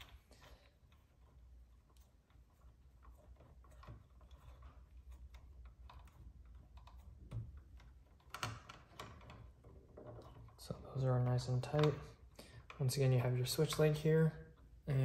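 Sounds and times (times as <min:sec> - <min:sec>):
wire nuts clicking: 0:00.0 - 0:10.6
wires twisting and rustling: 0:00.0 - 0:15.0.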